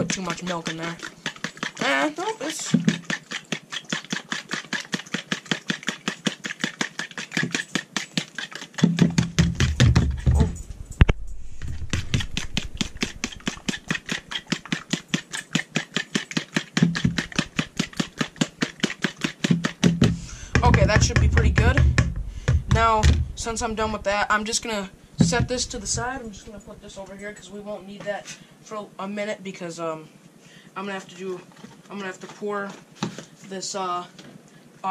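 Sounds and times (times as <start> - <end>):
fork beating batter in a bowl: 0.0 - 10.6, 11.6 - 23.1.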